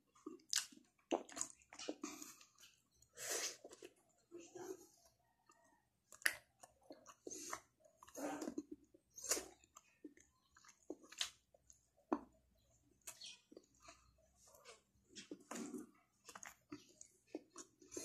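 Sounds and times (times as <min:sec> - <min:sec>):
person chewing: 0:00.0 - 0:18.0
mouth clicks and smacks: 0:00.1 - 0:04.0, 0:06.1 - 0:18.0.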